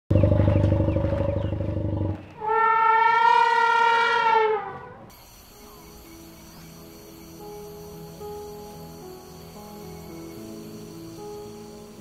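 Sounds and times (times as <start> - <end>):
elephant trumpeting: 2.4 - 5.1.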